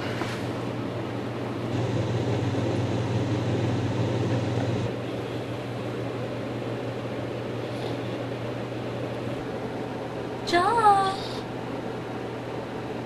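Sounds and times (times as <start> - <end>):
low hum: 1.7 - 6.0.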